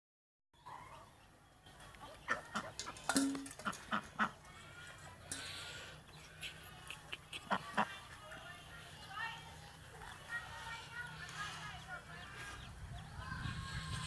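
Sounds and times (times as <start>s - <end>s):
duck quacking: 3.6s - 4.4s.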